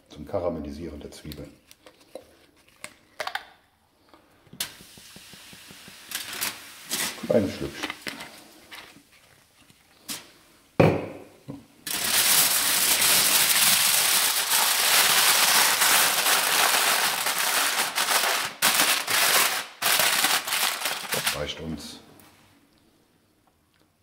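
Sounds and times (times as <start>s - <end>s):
aluminium foil crinkling: 5.9s - 10.3s, 11.8s - 21.6s.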